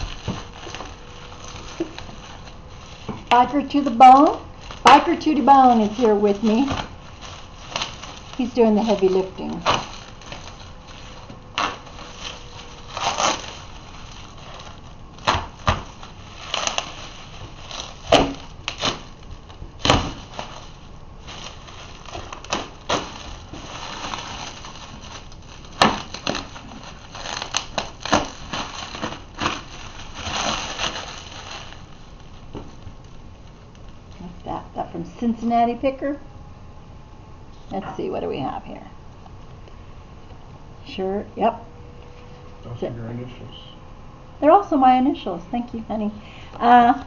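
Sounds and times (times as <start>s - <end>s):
bubble wrap crinkling and rustling: 0.0s - 36.1s, 45.6s - 47.0s.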